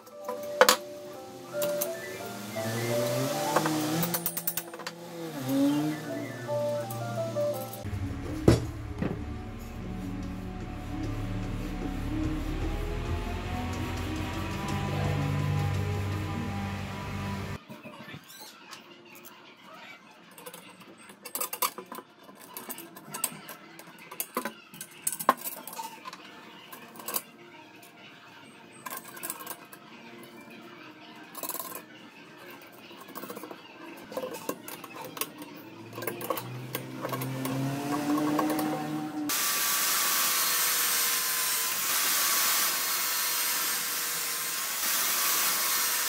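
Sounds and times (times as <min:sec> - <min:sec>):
metal parts clinking: 0:04.0 - 0:05.0.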